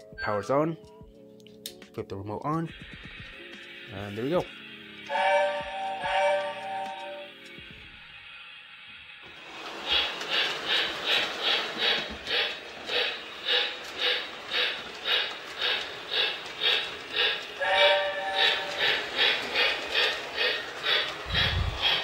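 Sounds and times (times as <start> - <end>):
model steam locomotive chuffing: 2.6 - 22.0
steam whistle: 5.0 - 7.6, 17.6 - 19.0.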